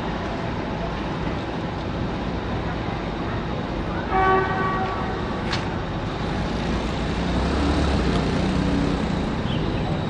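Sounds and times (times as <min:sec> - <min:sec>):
horn blast: 0:04.1 - 0:05.2.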